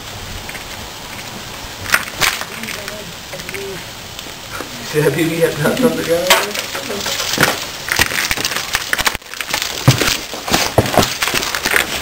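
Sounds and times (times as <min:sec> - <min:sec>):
person speaking: 0:02.5 - 0:07.4
pellets striking: 0:05.8 - 0:08.7.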